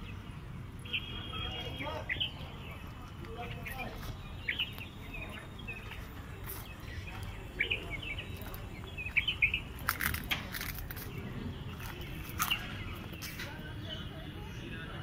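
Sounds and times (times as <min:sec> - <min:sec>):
small birds chirping: 0:00.0 - 0:15.0
sharp crackles: 0:09.8 - 0:11.1.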